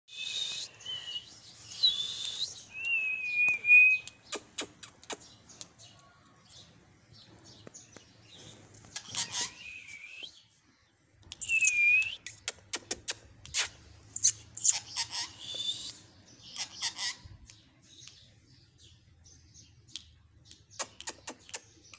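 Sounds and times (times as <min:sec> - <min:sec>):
parakeet shrill calls: 0:09.0 - 0:10.0, 0:14.2 - 0:17.3.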